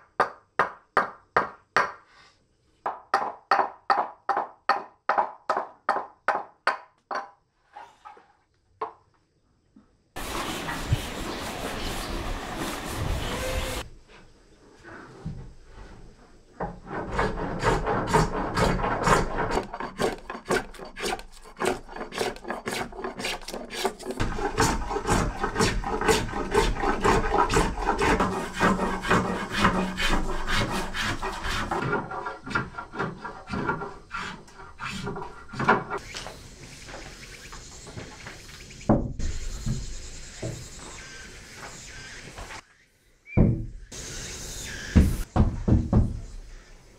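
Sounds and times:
hand tool rasping on wood: 16.8s - 36.0s.

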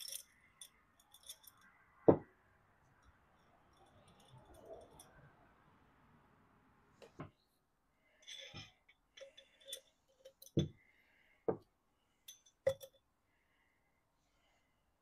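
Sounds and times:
metal clinking against glass jar: 0.0s - 1.8s, 3.0s - 5.3s, 8.2s - 10.7s, 12.3s - 13.0s.

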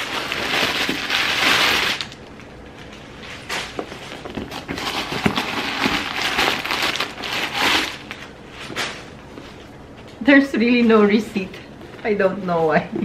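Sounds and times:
paper stuffing rustling: 0.0s - 9.8s.

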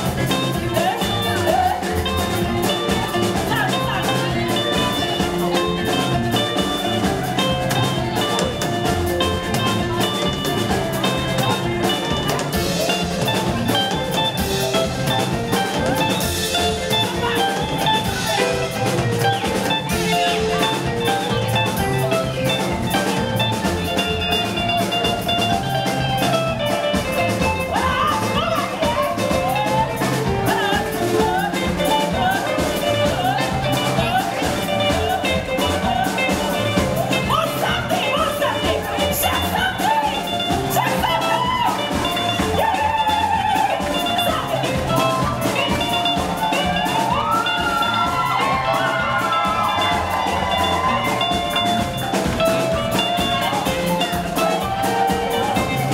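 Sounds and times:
live band playing dance music: 0.0s - 55.9s.

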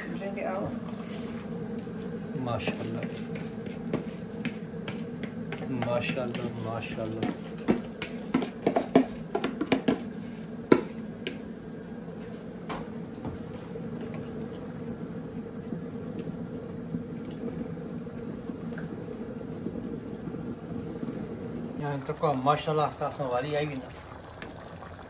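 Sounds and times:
low hum: 0.0s - 25.0s
stirring rice: 0.8s - 11.4s
wooden spoon knocking on pot: 3.9s - 10.1s, 10.7s - 11.4s.

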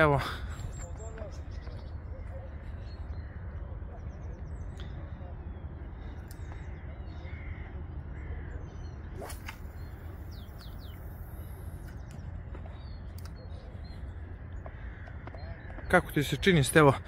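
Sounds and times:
crow cawing: 6.7s - 8.5s, 14.6s - 15.9s.

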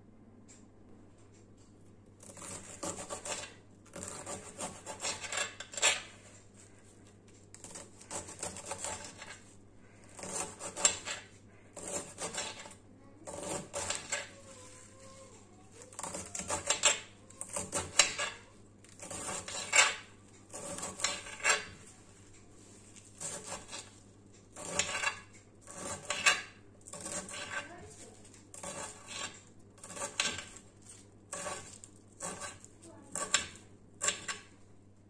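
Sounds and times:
knife chopping on glass board: 31.3s - 34.5s.

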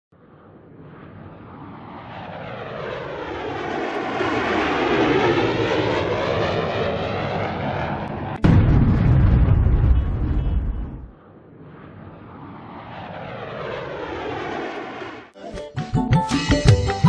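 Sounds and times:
jet flyby whoosh: 0.2s - 8.6s, 9.7s - 15.3s
sudden deep boom: 8.4s - 11.2s.

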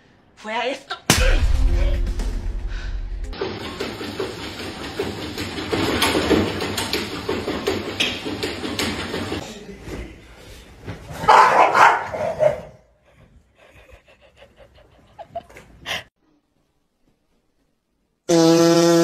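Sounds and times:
treadmill belt running: 3.4s - 9.4s
dog barking: 11.2s - 12.8s.

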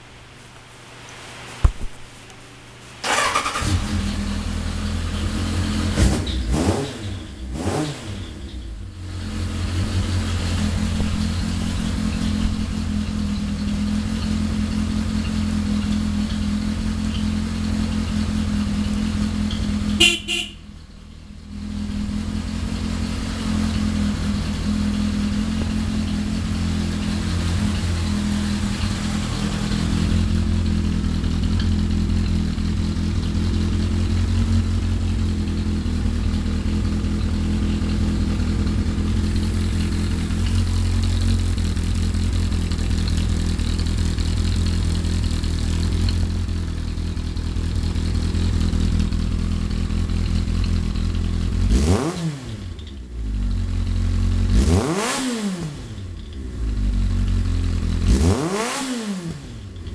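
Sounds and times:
motorcycle engine revving and idling: 3.0s - 59.9s
horn beep: 20.0s - 20.7s.

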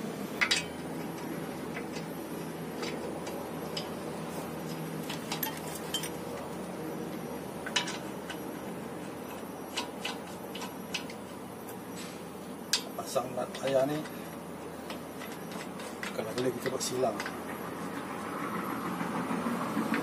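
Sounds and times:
low background hum: 0.0s - 20.0s
metal wheel nuts clicking: 0.4s - 6.5s, 7.1s - 11.8s, 12.7s - 17.4s.

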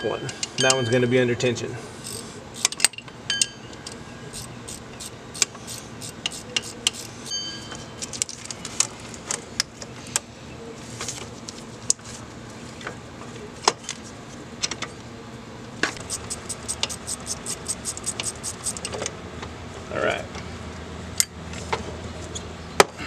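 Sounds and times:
ratchet wrench clicking: 2.0s - 3.0s, 4.4s - 7.1s, 16.0s - 18.9s.

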